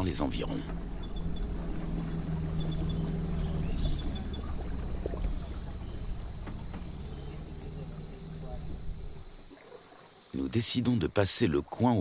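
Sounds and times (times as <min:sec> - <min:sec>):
low steady hum: 0:00.0 - 0:09.6
insects chirping: 0:00.0 - 0:12.0.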